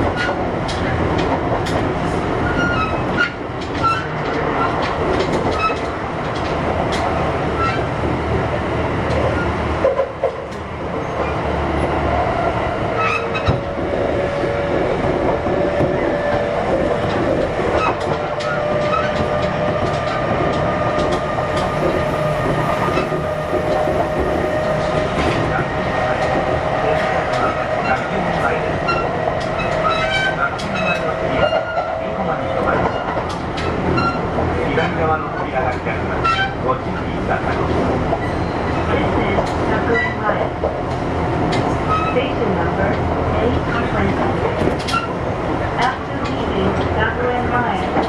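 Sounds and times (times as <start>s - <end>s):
wheels clicking over rail joints: 0.0s - 8.2s, 14.7s - 31.9s, 32.6s - 35.0s, 35.6s - 48.0s
electric train running: 13.0s - 34.4s.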